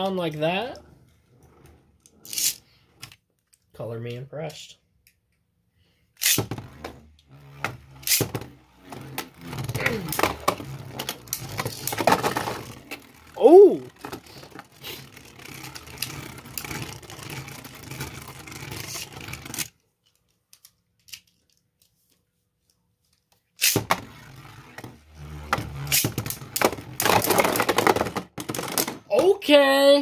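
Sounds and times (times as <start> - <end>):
spinning tops whirring: 0.0 - 3.1, 6.2 - 19.8, 23.6 - 29.6
spinning tops clacking together: 2.2 - 2.6, 6.2 - 6.4, 7.9 - 8.3, 25.7 - 29.0.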